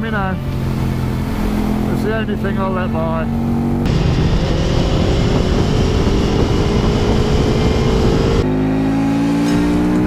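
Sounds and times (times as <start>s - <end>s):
motorcycle engine accelerating: 0.4s - 10.0s
wind rush: 3.8s - 8.5s.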